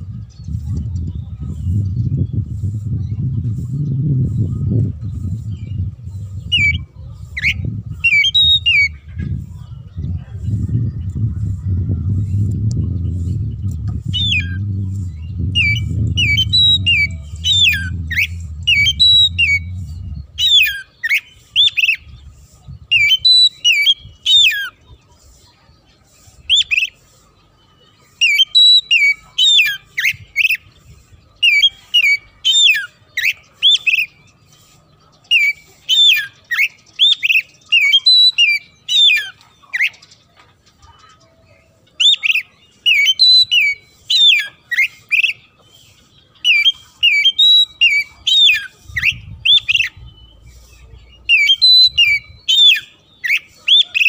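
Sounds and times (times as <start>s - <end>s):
low rumble: 0.0s - 8.0s, 8.9s - 20.4s
bird singing sharp repeated notes: 0.0s - 25.4s, 26.5s - 54.0s.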